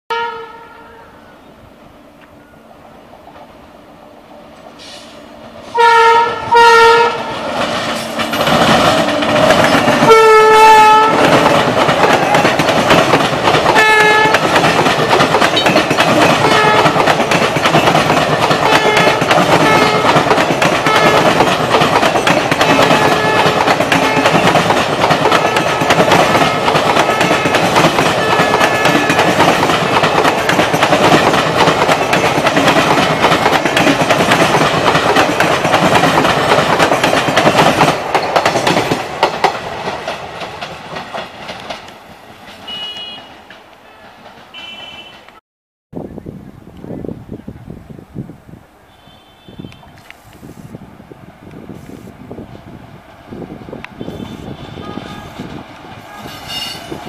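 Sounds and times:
locomotive horn blasts: 0.1 - 1.3, 5.7 - 7.4, 10.0 - 11.4, 13.8 - 14.4, 16.4 - 17.0, 18.6 - 20.2, 20.8 - 21.4, 22.7 - 24.5, 26.5 - 29.3, 42.6 - 43.4, 44.0 - 45.4, 48.9 - 50.4, 53.9 - 56.9
train rumble: 1.6 - 45.4, 46.0 - 57.0
wheel clatter over rail joints: 7.5 - 10.1, 11.2 - 44.6.

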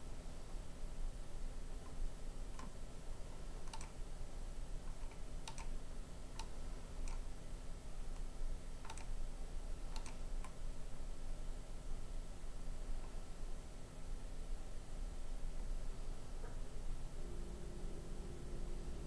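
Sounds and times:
low electrical hum: 0.0 - 19.0
computer mouse clicking: 1.8 - 2.8, 3.6 - 4.0, 4.9 - 5.8, 6.4 - 7.2, 8.2 - 9.1, 9.9 - 10.6.

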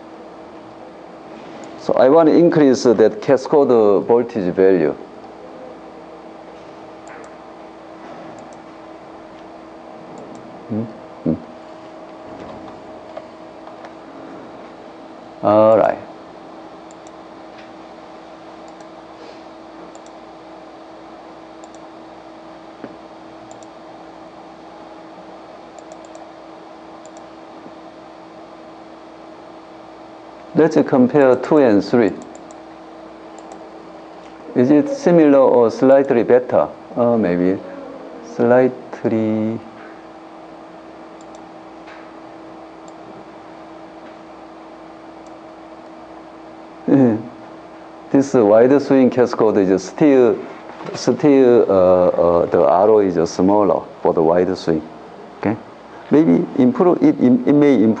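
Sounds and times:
steady hum: 0.0 - 58.0
computer clicks: 7.0 - 7.4, 8.4 - 8.7, 16.9 - 17.2, 18.7 - 19.0, 19.9 - 20.2, 21.6 - 21.9, 23.5 - 23.8, 25.8 - 26.3, 27.0 - 27.3, 32.1 - 32.6, 33.4 - 33.6, 41.2 - 41.4.

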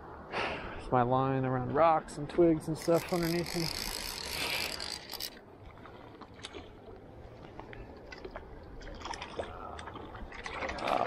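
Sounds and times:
fish splashing in shallow water: 2.9 - 11.0.

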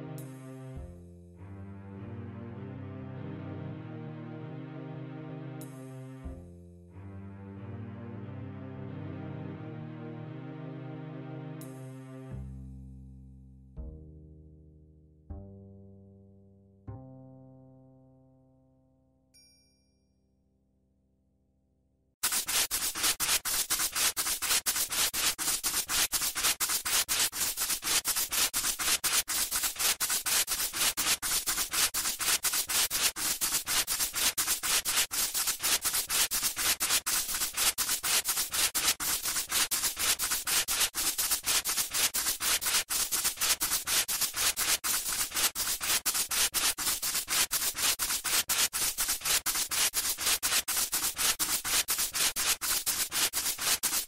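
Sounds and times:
dense scratching and crackling: 22.2 - 54.0.

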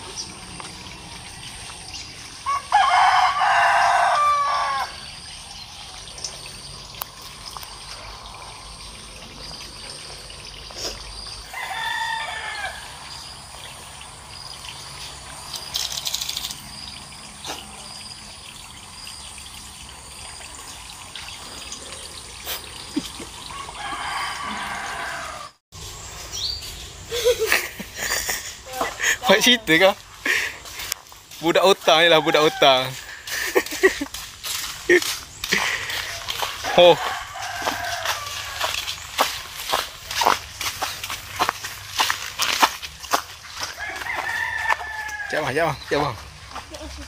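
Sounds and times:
rooster crowing: 2.4 - 5.2, 11.5 - 13.2, 23.5 - 25.6, 31.8 - 33.1, 35.8 - 38.9, 43.6 - 45.7.

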